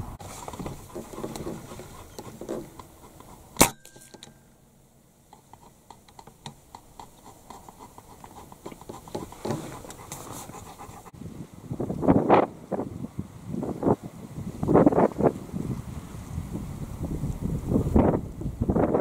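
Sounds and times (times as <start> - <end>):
faint ticking and rustle: 0.2 - 11.1
rifle shot: 3.6 - 4.3.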